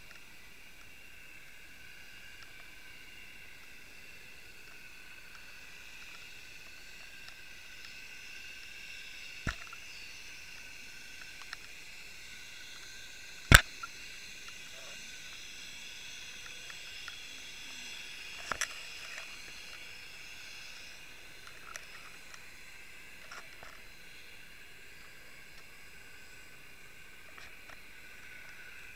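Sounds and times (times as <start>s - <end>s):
steady underwater hiss: 0.0s - 28.9s
sharp underwater clicks and knocks: 9.5s - 9.8s, 13.5s - 13.9s.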